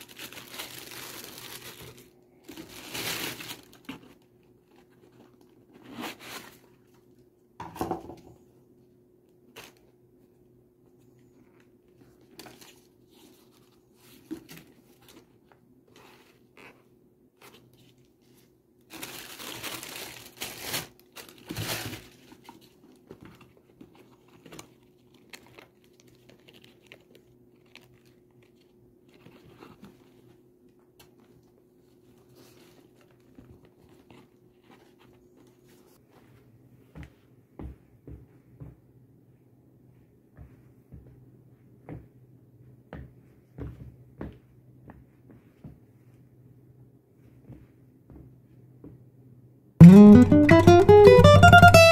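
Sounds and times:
tissue paper rustling: 0.0s - 6.9s, 17.4s - 22.8s.

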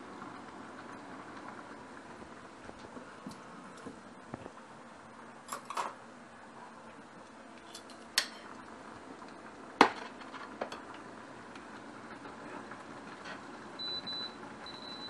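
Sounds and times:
dishes and utensils clinking: 7.7s - 8.6s.

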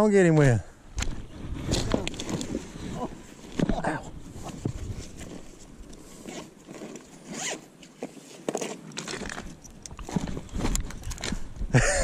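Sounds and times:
zipper on fabric bag: 6.2s - 7.6s.

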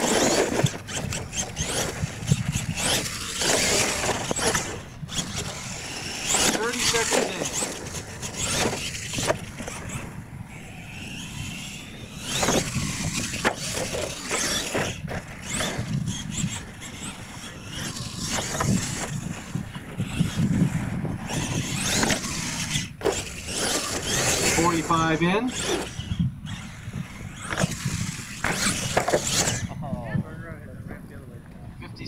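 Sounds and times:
tyres scrabbling over dirt: 0.0s - 10.1s, 10.9s - 29.6s
toy truck motors whining: 0.0s - 29.8s
sharp knocks of landings: 10.8s - 24.5s, 25.6s - 29.7s.

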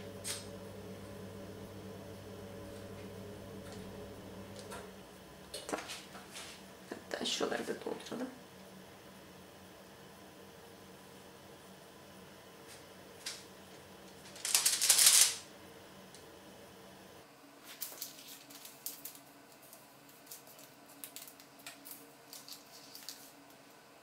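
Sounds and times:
baking paper rustling and crinkling: 14.0s - 15.5s, 17.6s - 23.7s.

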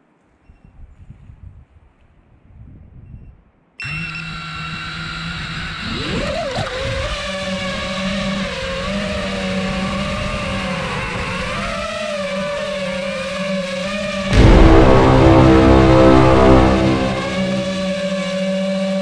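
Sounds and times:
quadcopter motors whining: 3.8s - 14.3s.

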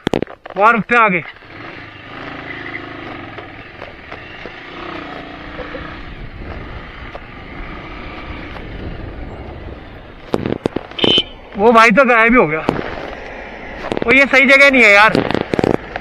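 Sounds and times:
motorcycle engine running: 1.2s - 16.0s
wind noise rushing: 5.9s - 11.2s.

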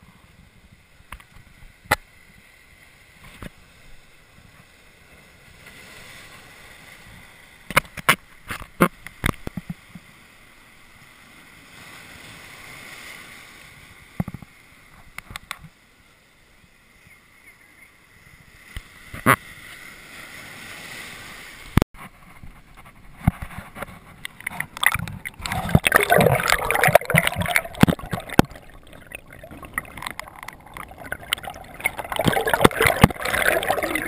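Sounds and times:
sharp water splashes: 24.3s - 34.0s
surf foaming over rocks: 24.4s - 34.0s.

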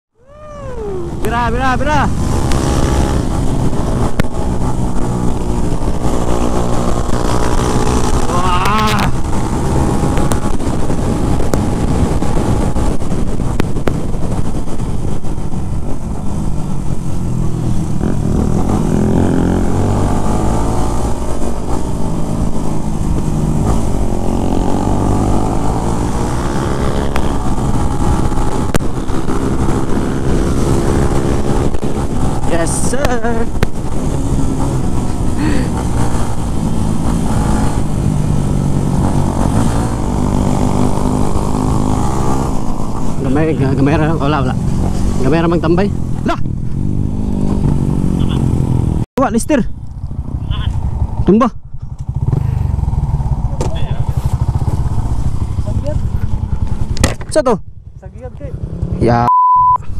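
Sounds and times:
motorcycle engine running: 0.4s - 59.0s.

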